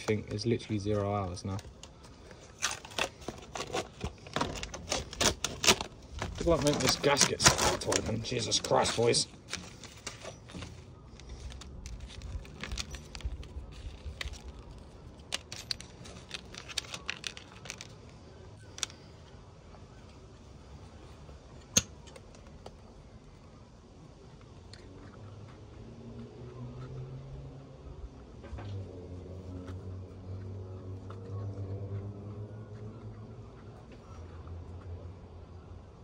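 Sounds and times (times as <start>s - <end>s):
paper clicks and crinkles: 0.0s - 23.6s.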